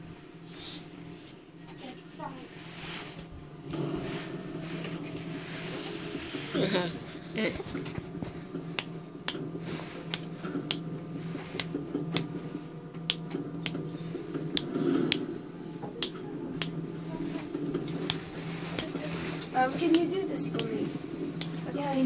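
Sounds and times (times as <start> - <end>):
low steady hum: 0.0 - 22.0
sharp clicks: 8.6 - 10.9, 11.6 - 12.3, 13.0 - 15.3.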